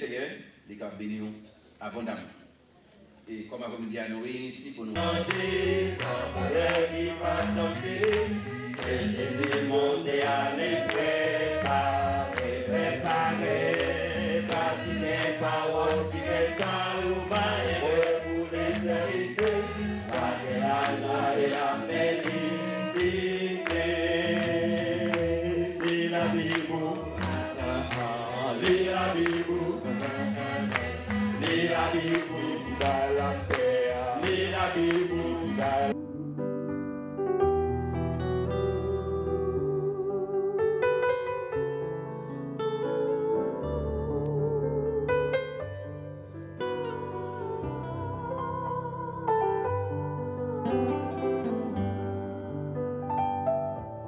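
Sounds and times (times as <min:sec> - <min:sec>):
men singing gospel song: 0:05.0 - 0:36.0
rhythmic handclaps: 0:05.0 - 0:36.0.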